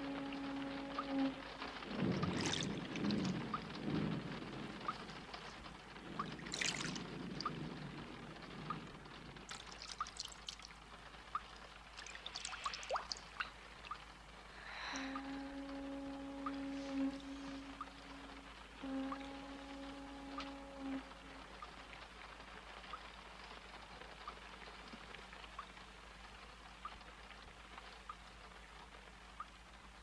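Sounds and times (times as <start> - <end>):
water pouring and trickling: 0.0 - 26.8
water drips plinking: 0.1 - 3.8, 4.8 - 8.0, 8.7 - 14.2, 15.0 - 21.8.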